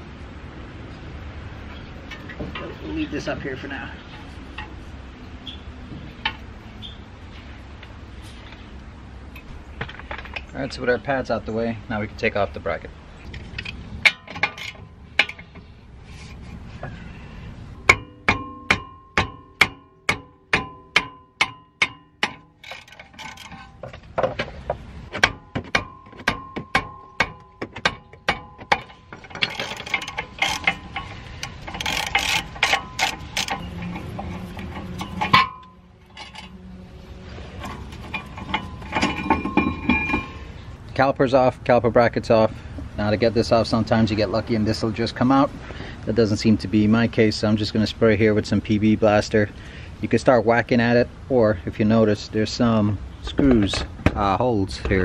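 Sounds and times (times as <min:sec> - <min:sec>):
metallic clatter of tools: 0:13.3 - 0:15.6, 0:20.6 - 0:24.4, 0:25.2 - 0:36.6, 0:37.6 - 0:40.4
ratchet wrench clicking: 0:28.7 - 0:33.9.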